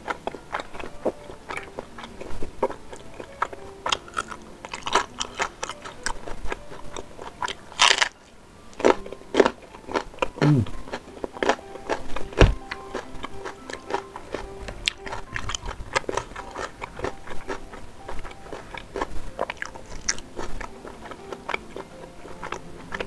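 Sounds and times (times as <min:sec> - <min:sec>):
wet chewing: 0:00.0 - 0:23.0
crunchy bites into chilies: 0:03.4 - 0:08.2
short low thump: 0:12.4 - 0:12.6.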